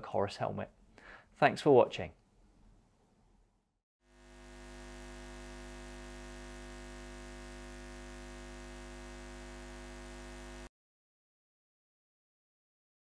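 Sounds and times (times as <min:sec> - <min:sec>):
steady hum of fixed tones: 0:04.2 - 0:10.7.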